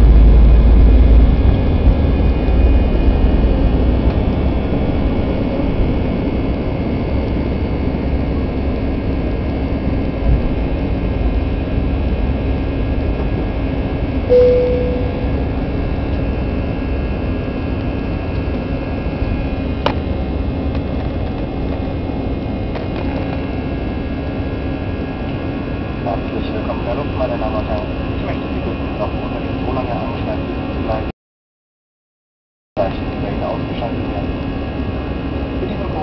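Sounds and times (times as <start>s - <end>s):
short single tone: 14.3s - 15.7s.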